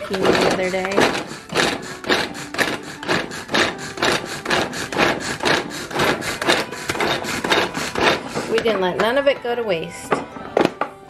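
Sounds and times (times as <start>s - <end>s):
pull-cord food chopper rasping: 0.0s - 8.8s.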